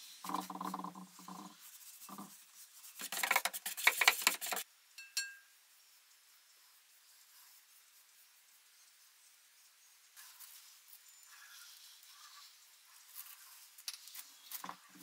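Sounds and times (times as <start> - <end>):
light metallic clink: 5.0 - 5.5.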